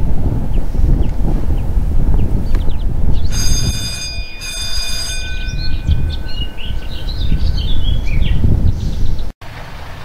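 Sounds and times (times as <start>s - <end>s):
wind rumble on microphone: 0.0s - 10.0s
small birds chirping: 0.5s - 3.4s, 5.2s - 9.3s
train horn: 3.3s - 5.4s.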